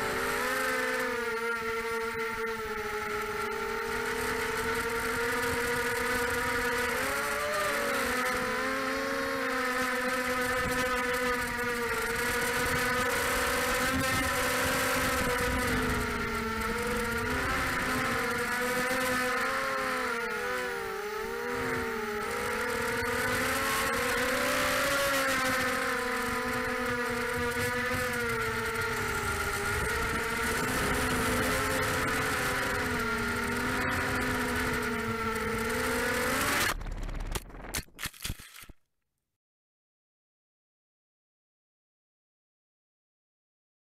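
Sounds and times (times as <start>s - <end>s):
quadcopter motors whining: 0.0s - 38.8s
drone crashing into trees: 36.4s - 38.0s.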